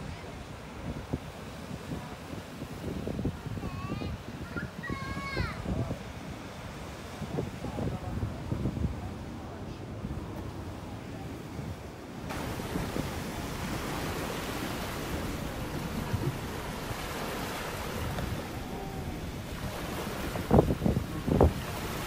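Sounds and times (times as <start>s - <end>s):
surf breaking on rocky shore: 0.0s - 22.0s
wind rumbling on microphone: 0.0s - 22.0s.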